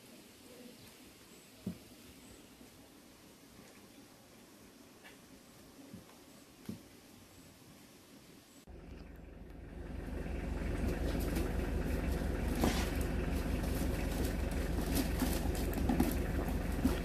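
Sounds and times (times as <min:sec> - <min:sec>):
low mechanical rumble: 0:08.6 - 0:17.0.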